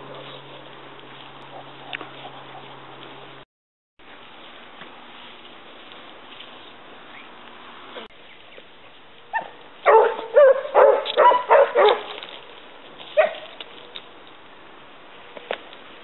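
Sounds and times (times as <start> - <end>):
hounds baying: 1.4 - 2.9, 9.3 - 12.2.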